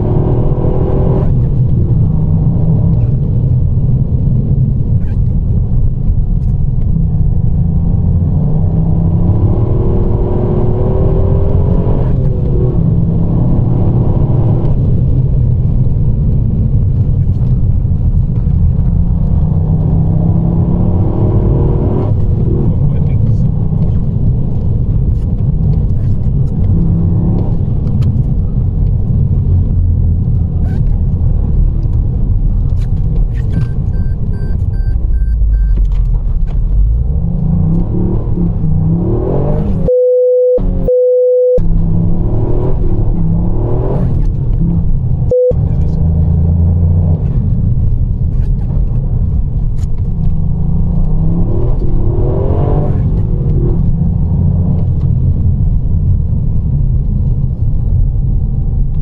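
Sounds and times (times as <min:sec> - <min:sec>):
car engine revving: 0:00.0 - 0:03.2, 0:06.4 - 0:15.8, 0:16.6 - 0:55.5
electronic beep: 0:33.6 - 0:35.8, 0:39.9 - 0:41.6, 0:45.3 - 0:45.6.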